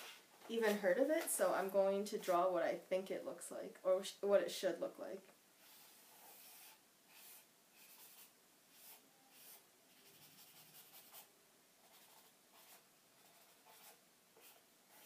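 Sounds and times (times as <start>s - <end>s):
pencil strokes scratching on paper: 5.6s - 15.0s.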